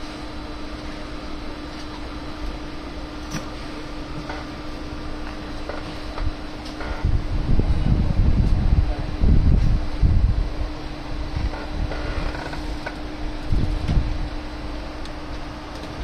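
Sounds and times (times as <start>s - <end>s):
fan humming: 0.0s - 16.0s
low rumble: 5.6s - 14.4s.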